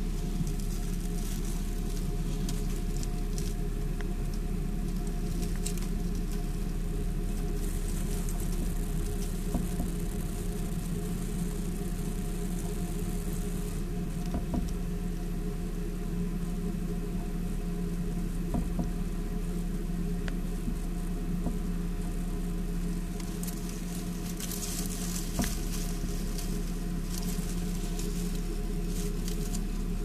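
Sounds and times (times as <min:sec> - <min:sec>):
shredded paper rustling: 0:00.0 - 0:14.2, 0:22.8 - 0:30.0
low electrical hum: 0:00.0 - 0:30.0.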